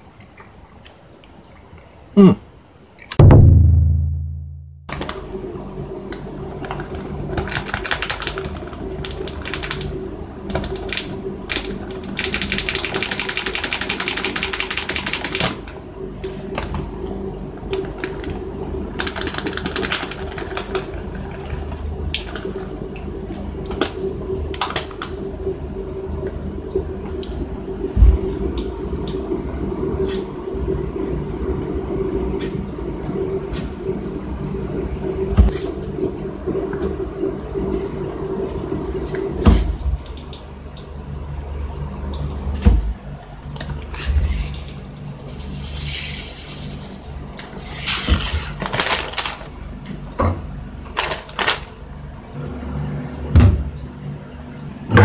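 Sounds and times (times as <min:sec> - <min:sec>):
sharp thump: 0:03.2 - 0:04.9
steady hum: 0:03.2 - 0:13.1
container shaking rattle: 0:10.5 - 0:15.4, 0:18.0 - 0:22.6.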